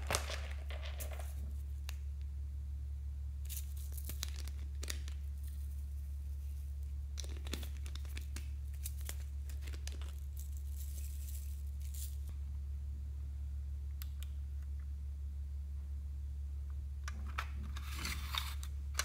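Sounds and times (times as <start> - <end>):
steady low hum: 0.0 - 19.0
sprinkles clicking and crackling: 3.5 - 5.9, 7.1 - 12.3.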